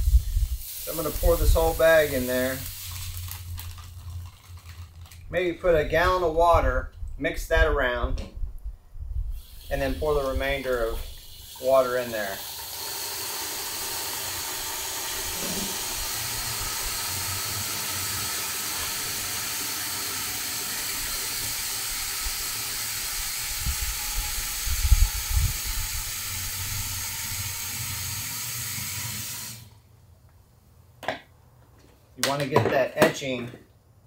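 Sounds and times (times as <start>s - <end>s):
water spraying into plastic tank: 0.0s - 6.0s, 9.3s - 29.8s.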